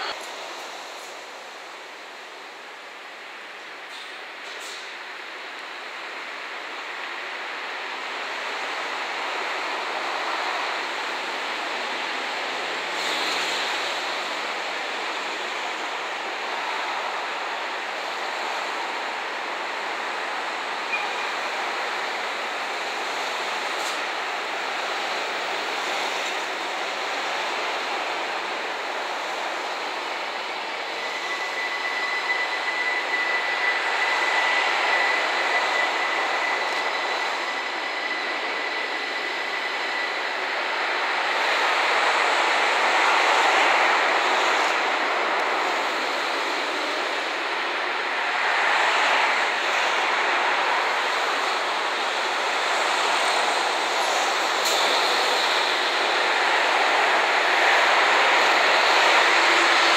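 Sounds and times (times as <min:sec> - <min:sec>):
train rolling on track: 0:00.0 - 0:59.9
high wheel squeal: 0:30.8 - 0:40.5.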